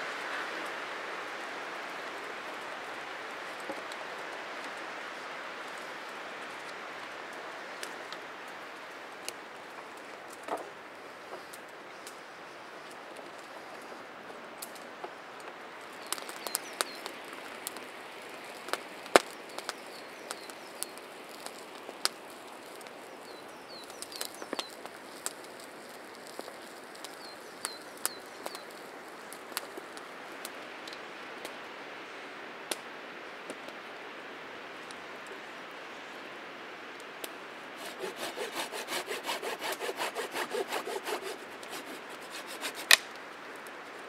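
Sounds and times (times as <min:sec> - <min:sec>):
wood fire crackling and popping: 0:01.9 - 0:12.2, 0:14.6 - 0:31.5, 0:38.1 - 0:44.0.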